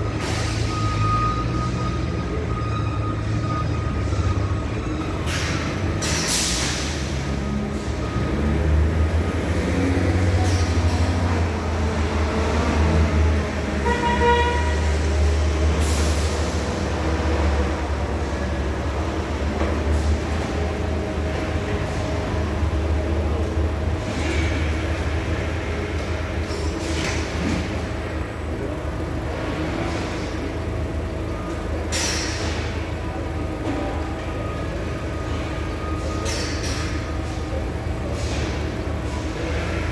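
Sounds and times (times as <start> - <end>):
forklift humming: 0.0 - 39.9
short horn toot: 13.8 - 14.9.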